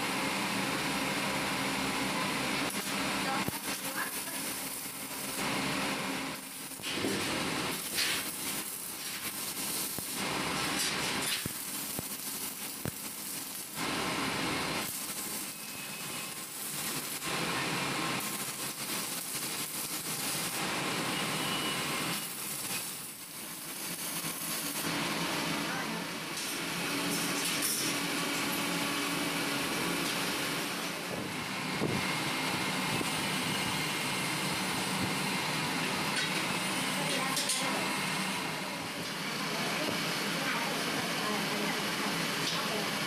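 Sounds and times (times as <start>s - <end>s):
arc welding crackling hiss: 0.1s - 43.0s.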